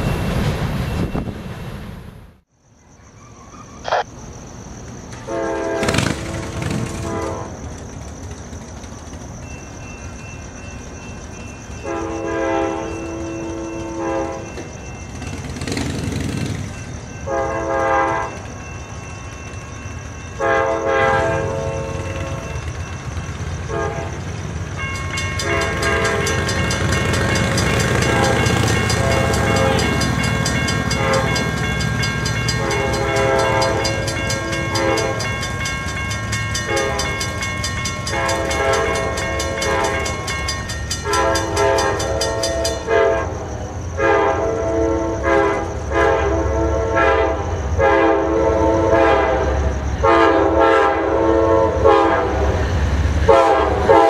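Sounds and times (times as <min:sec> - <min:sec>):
train horn blasts: 0:05.3 - 0:07.6, 0:11.8 - 0:14.5, 0:17.2 - 0:18.4, 0:20.4 - 0:22.6, 0:23.6 - 0:24.4, 0:25.4 - 0:31.6, 0:32.3 - 0:35.6, 0:36.5 - 0:37.3, 0:38.0 - 0:40.3, 0:41.0 - 0:52.6, 0:53.2 - 0:54.0
crossing warning bell ringing: 0:06.0 - 0:46.6.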